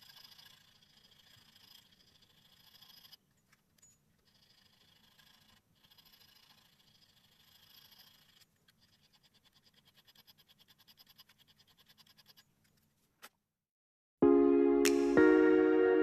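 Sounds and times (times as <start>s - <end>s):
hand file rasping on metal: 0.0s - 3.2s, 4.3s - 12.5s.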